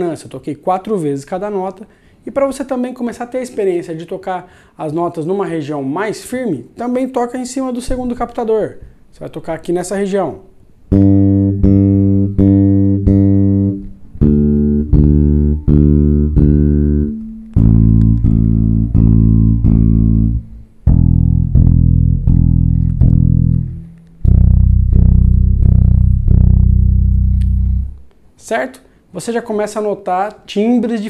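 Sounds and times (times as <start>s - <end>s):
electric bass plucked: 10.9s - 28.1s.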